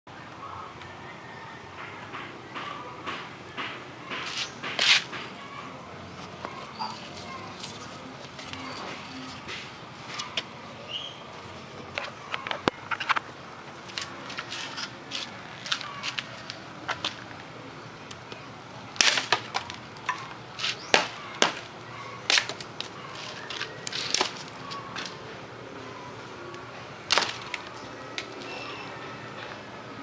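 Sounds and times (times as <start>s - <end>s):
machete chopping branch: 3.6s - 5.2s, 19.0s - 19.7s, 20.6s - 21.7s, 22.3s - 22.7s, 27.1s - 27.6s.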